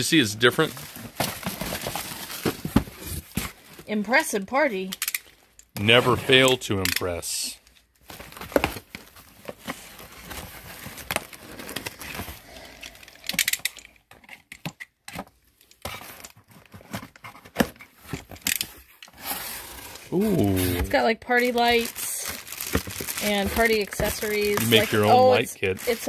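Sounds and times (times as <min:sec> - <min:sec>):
tape tearing: 0:15.7 - 0:26.0.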